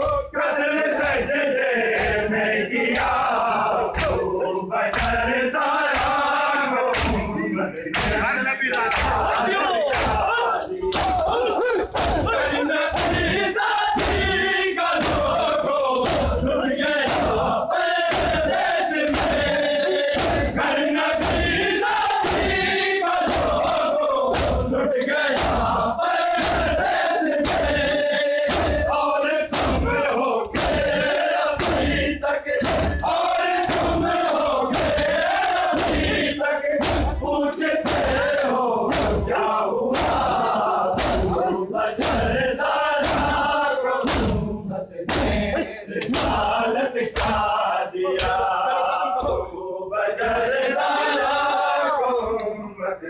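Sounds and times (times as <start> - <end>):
crowd of men chanting: 0.0 - 53.0
hands slapping bare chests: 3.9 - 4.3, 4.9 - 5.2, 5.9 - 6.3, 6.9 - 7.2, 10.9 - 11.3, 11.9 - 12.3, 15.0 - 16.4, 17.0 - 17.5, 20.1 - 20.5, 24.3 - 25.7, 32.6 - 38.2, 38.9 - 39.2, 41.0 - 42.3, 44.0 - 44.4.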